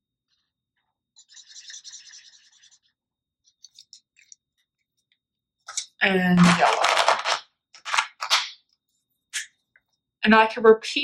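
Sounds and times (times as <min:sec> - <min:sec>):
marker rubbing on paper: 0:01.2 - 0:03.0.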